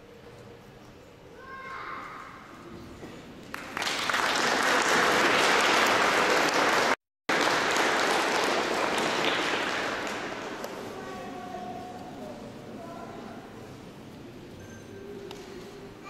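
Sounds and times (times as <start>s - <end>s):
audience applauding: 3.5s - 10.6s.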